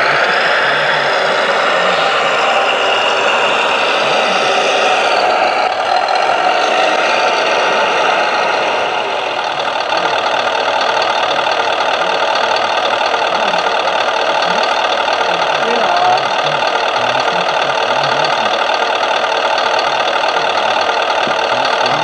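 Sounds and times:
hydraulic pump whine: 0.0s - 22.0s
simulated diesel engine sound: 0.0s - 22.0s.

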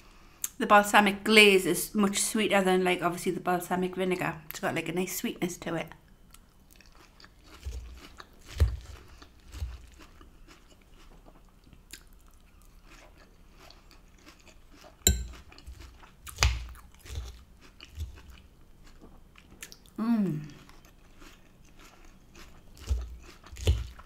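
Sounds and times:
person chewing salad: 6.2s - 24.0s
metal fork clicking on ceramic bowl: 15.1s - 15.3s.

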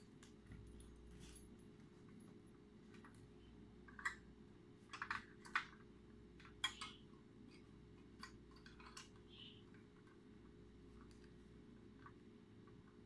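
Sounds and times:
plastic parts clicking and tapping: 3.8s - 13.0s.

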